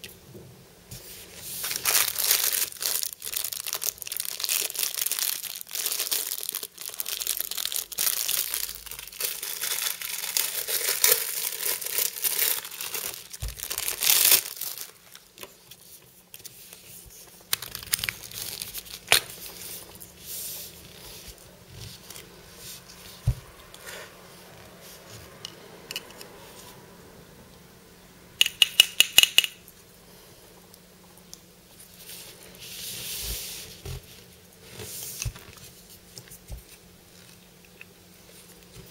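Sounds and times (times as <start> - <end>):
plastic wrapper crinkling and tearing: 1.6 - 16.6, 17.2 - 20.1
plastic toy handling clicks: 28.4 - 29.6.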